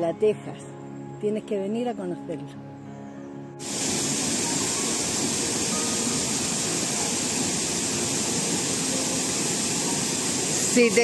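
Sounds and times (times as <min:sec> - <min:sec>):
fast-flowing water rushing: 0:03.6 - 0:11.0.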